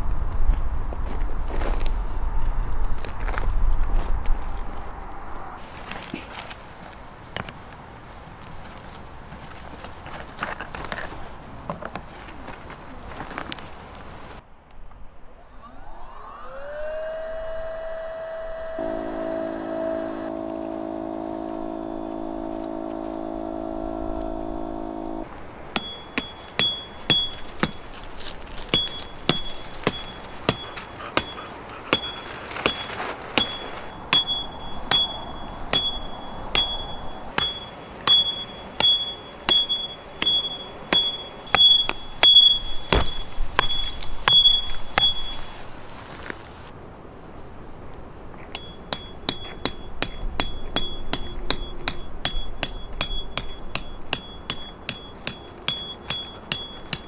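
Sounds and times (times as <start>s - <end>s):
steady hum: 15.1s - 27.9s, 28.7s - 45.7s
small motor whining: 15.4s - 25.3s
ringing metal strikes: 25.8s - 28.0s, 28.7s - 45.5s, 48.5s - 57.0s.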